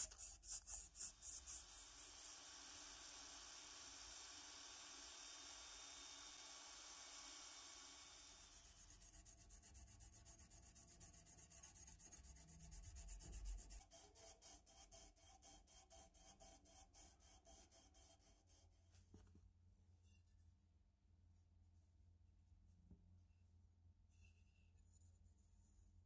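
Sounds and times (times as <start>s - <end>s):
hand sanding metal: 0.0s - 2.4s, 8.3s - 18.8s.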